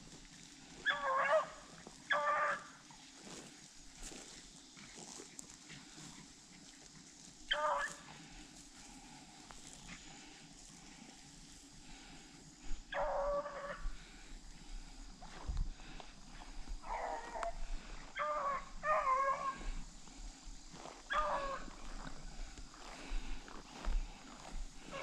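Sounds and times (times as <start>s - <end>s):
dogs baying: 0.8s - 2.8s, 12.9s - 14.2s, 16.3s - 19.9s, 21.0s - 22.2s, 24.8s - 25.0s.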